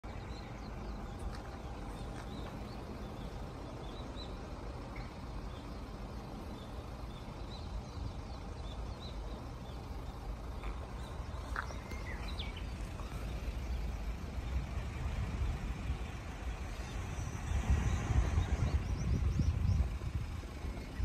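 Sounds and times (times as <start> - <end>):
steady low rumble: 0.0 - 21.0
bird chirps: 0.1 - 14.6.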